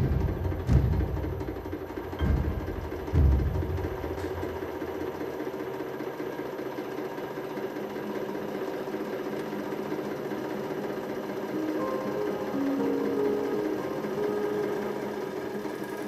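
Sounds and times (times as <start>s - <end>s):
hydraulic press humming: 0.0s - 6.1s.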